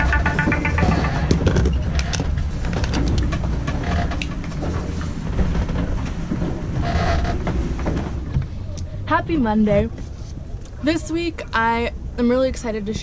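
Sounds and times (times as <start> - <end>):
hull creaks and knocks: 0.0 - 8.6
steady low rumble: 0.0 - 13.0.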